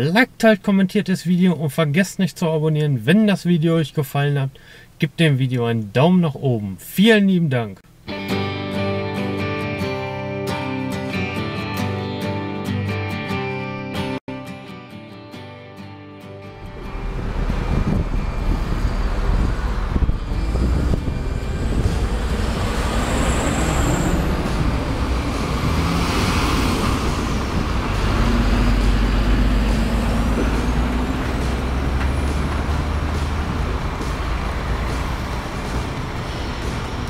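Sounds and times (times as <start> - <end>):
truck diesel engine rumbling: 16.5 - 37.0.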